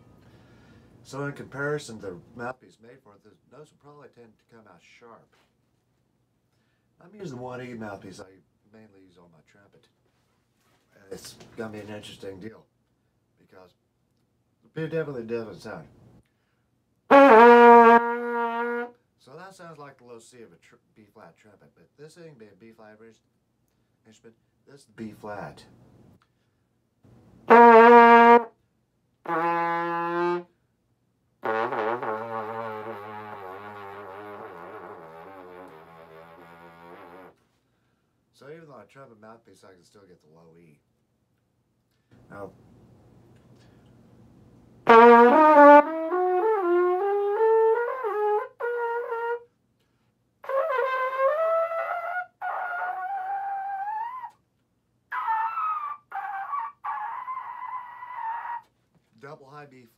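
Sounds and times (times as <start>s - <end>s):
trombone held notes: 17.1s - 18.9s, 27.5s - 28.5s, 29.3s - 30.5s, 31.4s - 37.3s, 44.8s - 49.4s, 50.4s - 54.3s.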